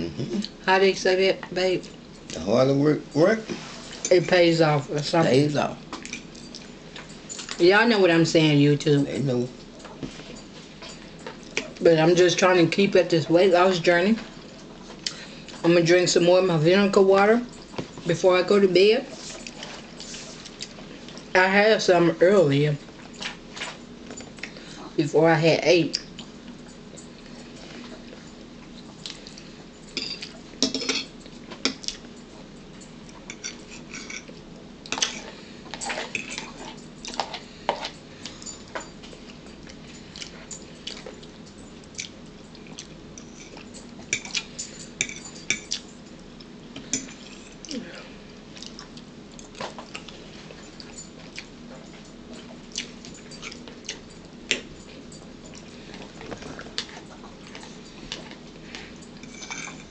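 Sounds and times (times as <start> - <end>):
faint steady hum: 0.0 - 59.9
spoon clinking against bowl: 29.9 - 31.8, 43.2 - 45.9.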